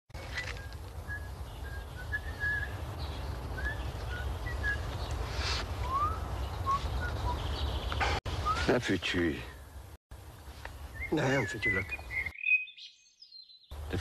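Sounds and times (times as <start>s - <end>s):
man whistling softly: 5.5s - 7.4s.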